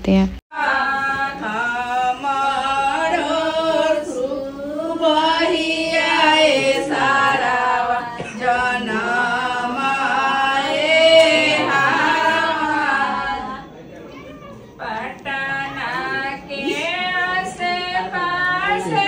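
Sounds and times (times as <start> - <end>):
women singing unaccompanied: 0.5 - 13.8, 14.7 - 19.0.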